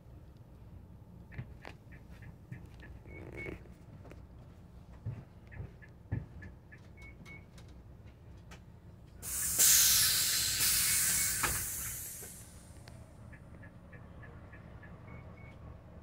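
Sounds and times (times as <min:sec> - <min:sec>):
bus engine idling: 0:03.7 - 0:16.0
compressed air hiss: 0:09.2 - 0:12.7.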